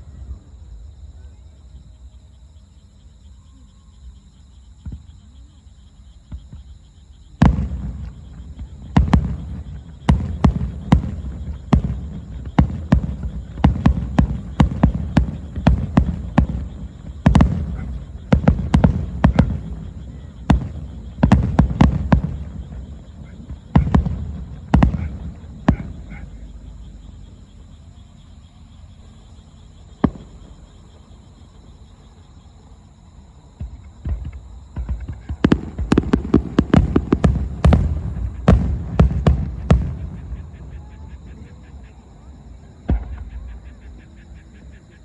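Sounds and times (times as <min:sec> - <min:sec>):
firework shells bursting: 0:33.6 - 0:40.4.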